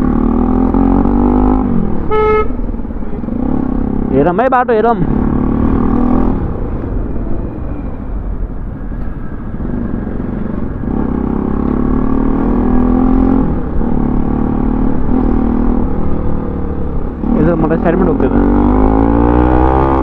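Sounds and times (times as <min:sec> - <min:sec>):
motorcycle engine running: 0:00.0 - 0:06.8
wind and road noise: 0:00.0 - 0:20.0.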